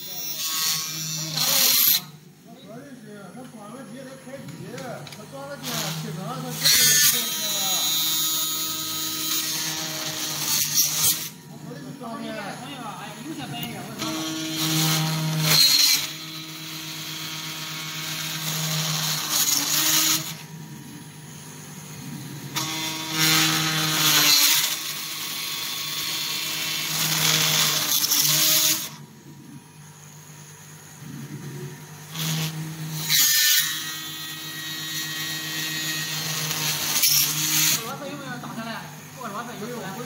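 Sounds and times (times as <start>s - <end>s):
screw drilling and driving bursts: 14.0s - 20.4s, 22.6s - 29.0s, 32.1s - 37.9s.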